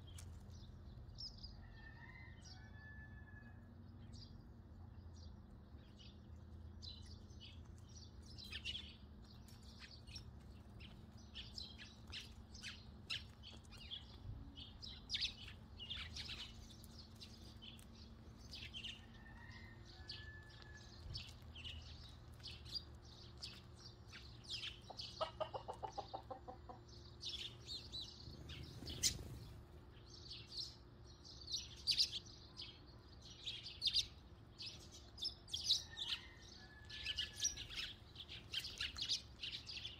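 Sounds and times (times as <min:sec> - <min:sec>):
sparrows chirping: 0:00.0 - 0:39.9
chicken clucking: 0:24.8 - 0:26.9.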